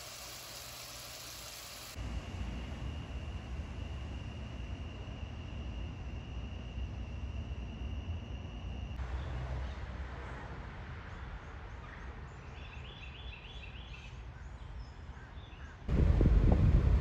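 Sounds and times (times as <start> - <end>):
steady high-pitched insect tone: 0.0 - 9.0.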